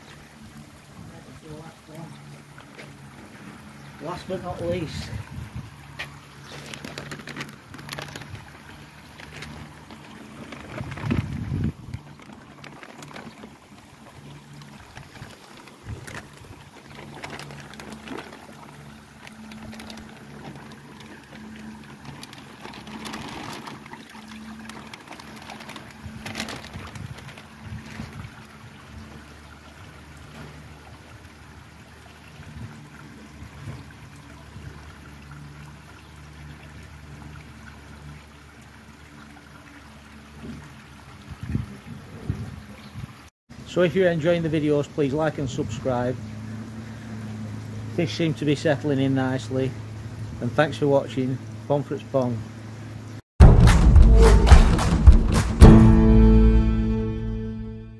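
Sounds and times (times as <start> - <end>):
water trickling in a pond: 0.0 - 53.2
low splashing disturbance: 53.4 - 57.9.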